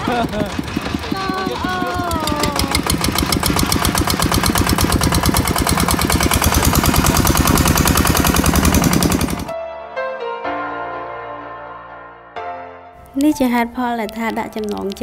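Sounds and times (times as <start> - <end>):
diesel engine chugging: 0.0 - 9.5
soft music: 9.5 - 15.0.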